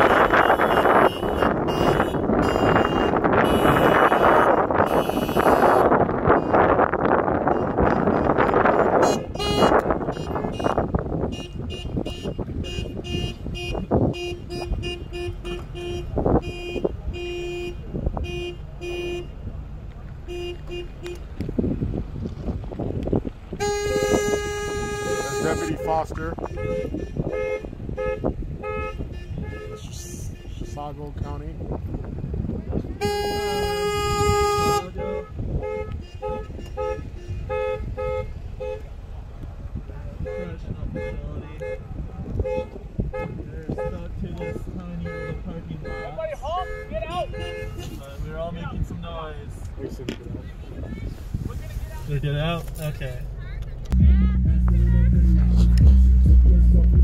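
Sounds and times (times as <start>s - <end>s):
car horns tooting: 0.0s - 19.6s, 20.2s - 21.5s, 23.5s - 31.4s, 32.4s - 39.0s, 40.1s - 49.3s
short two-note horn toots: 23.6s - 27.6s.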